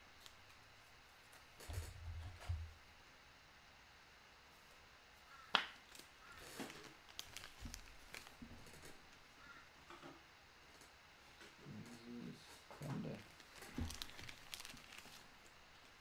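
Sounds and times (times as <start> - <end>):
trading cards rustling: 5.9 - 9.0, 12.9 - 16.0.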